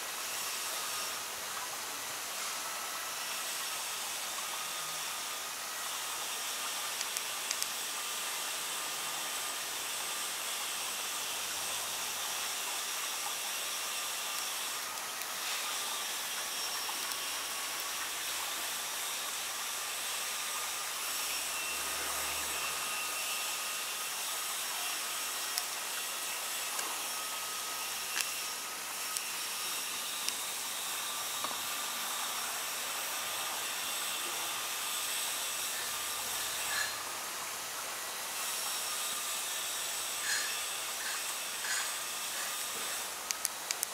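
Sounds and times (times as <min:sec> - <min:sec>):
faint high whine: 0:00.0 - 0:43.8
steady hiss: 0:00.0 - 0:43.9
tiny ticks: 0:07.0 - 0:07.8.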